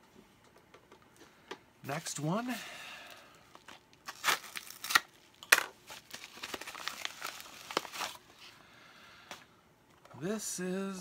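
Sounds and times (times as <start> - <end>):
envelope crinkling and ripping: 3.1 - 8.2.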